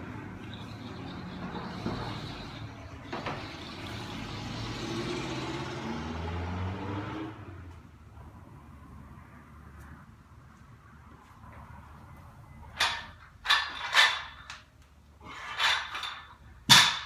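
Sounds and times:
vehicle engine revving: 3.4s - 7.6s.

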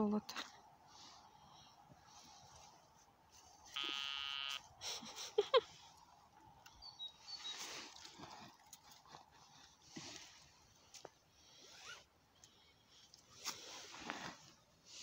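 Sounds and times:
metal detector buzzing tone: 3.7s - 4.6s.

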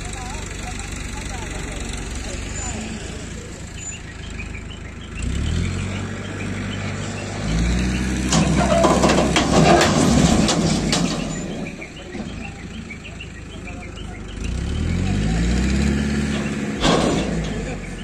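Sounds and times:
diesel engine revving: 0.0s - 18.0s
metal clattering and scraping: 7.8s - 12.5s, 16.0s - 18.0s.

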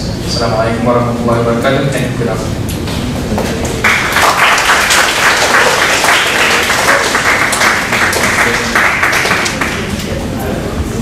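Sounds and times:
audience applauding: 3.4s - 10.1s.

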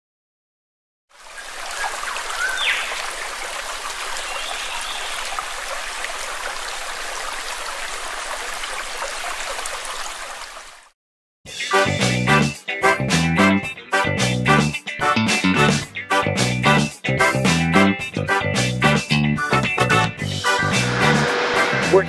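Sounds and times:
running water: 1.1s - 10.9s.

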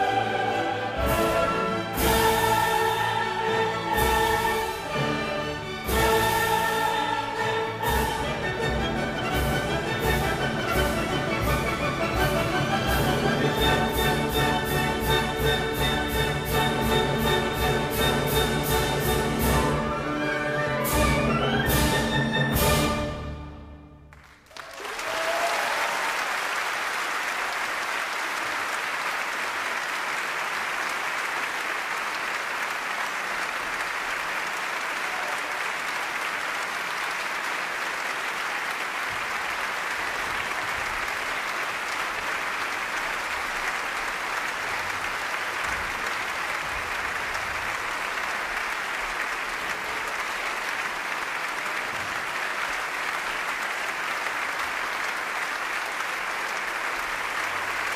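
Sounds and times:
audience applauding: 24.1s - 57.9s.

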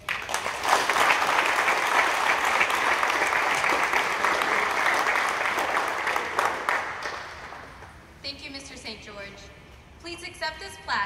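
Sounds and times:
crowd applauding: 0.0s - 8.0s.

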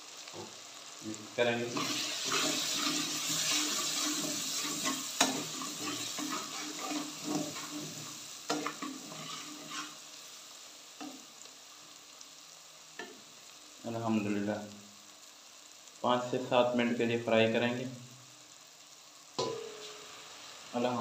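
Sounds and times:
masala sizzling in hot oil: 0.0s - 21.0s
metal spatula stirring and scraping: 1.7s - 10.1s.

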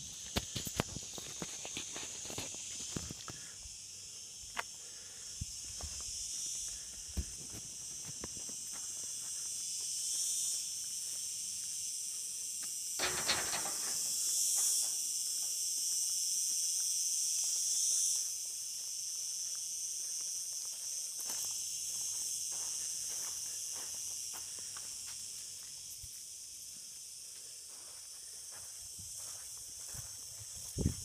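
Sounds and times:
insects shrilling: 0.0s - 31.0s
footsteps scuffing: 7.0s - 11.8s, 19.4s - 26.3s, 27.7s - 31.0s.

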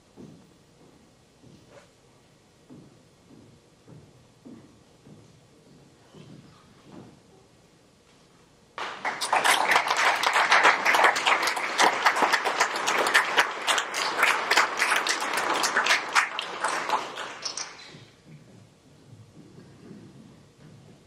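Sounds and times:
audience applauding: 8.8s - 18.1s.

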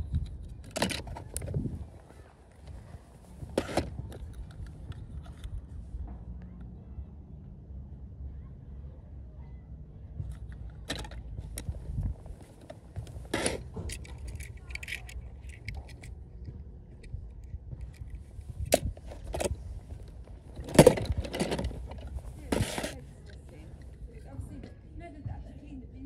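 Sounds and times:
toy cars clattering in plastic tub: 13.2s - 16.1s, 20.6s - 23.0s.

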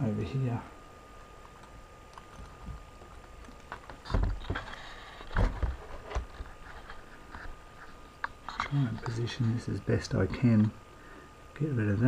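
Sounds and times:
dull bumps and knocks: 5.3s - 6.4s.

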